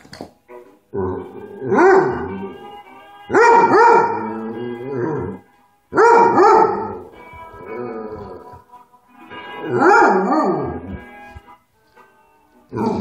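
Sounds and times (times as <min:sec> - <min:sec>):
music: 0:00.0 - 0:13.0
dog howling: 0:01.0 - 0:02.7, 0:09.7 - 0:11.0.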